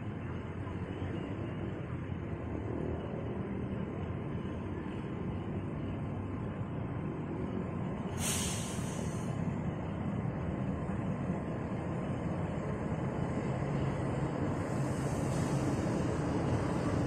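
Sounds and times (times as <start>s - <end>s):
diesel locomotive engine rumble: 0.0s - 17.0s
brief hiss: 8.1s - 9.4s.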